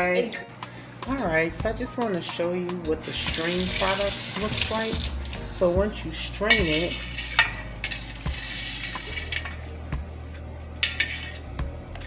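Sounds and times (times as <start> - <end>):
spoon clinking against metal bowl: 6.5 - 9.6.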